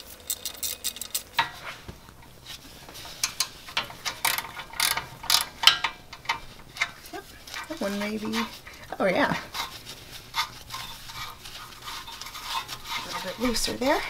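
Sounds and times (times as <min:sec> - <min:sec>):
socket ratchet clicking: 0:04.0 - 0:06.9.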